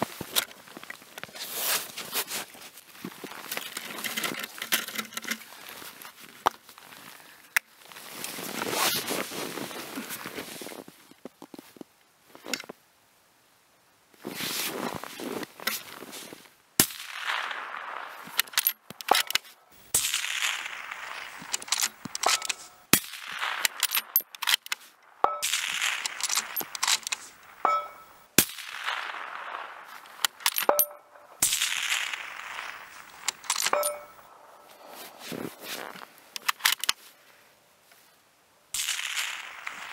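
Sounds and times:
rifle shots with echo: 16.8s - 19.4s, 25.2s - 34.2s
rifle bolt metallic clacks: 18.4s - 19.5s, 21.5s - 22.7s, 23.6s - 28.1s, 30.2s - 31.1s, 33.2s - 34.2s, 36.4s - 37.0s.

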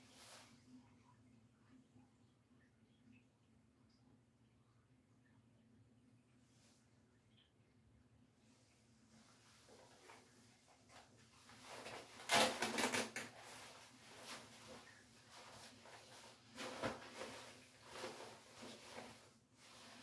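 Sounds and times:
fabric rustling: 9.1s - 20.0s.

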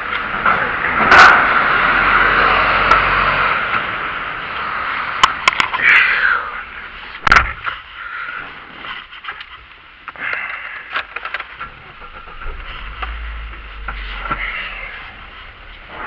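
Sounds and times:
low rumble: 11.5s - 16.0s.

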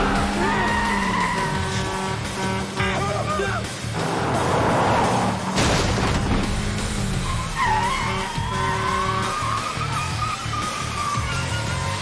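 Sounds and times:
driving music score: 0.0s - 12.0s
car engine rushing past: 3.8s - 7.5s
tyres squealing: 7.1s - 11.3s.

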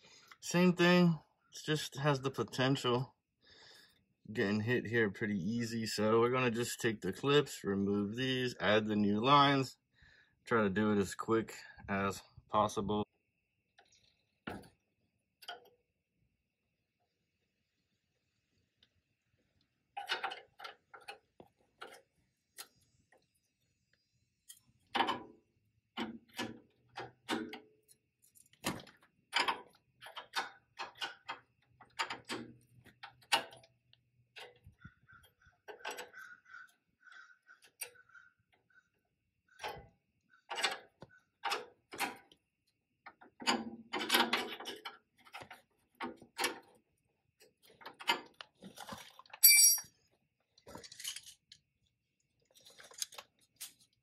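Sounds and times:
hand tools clicking and knocking: 26.0s - 33.7s, 40.4s - 42.3s.

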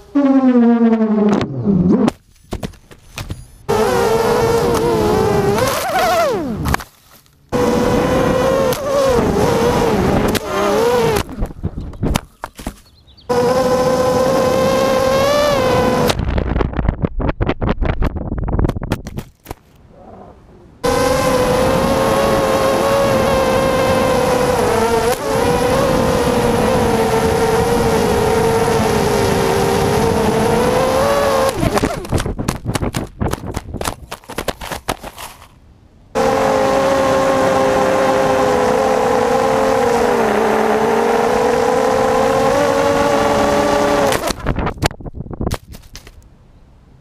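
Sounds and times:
quadcopter crashing and tumbling: 1.2s - 16.6s, 20.8s - 35.5s, 36.2s - 44.9s
quadcopter motors whining: 3.7s - 6.8s, 7.5s - 11.7s, 13.3s - 16.2s, 20.8s - 32.2s, 36.2s - 44.4s.

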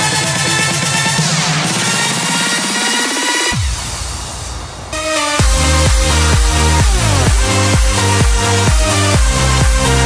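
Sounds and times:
electronic dance music: 0.0s - 10.0s
heavy kick drum: 3.6s - 10.0s.

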